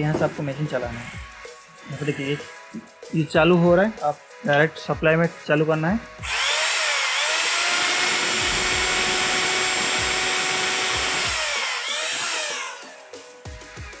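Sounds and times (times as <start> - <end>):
drill motor whining: 6.2 - 13.1.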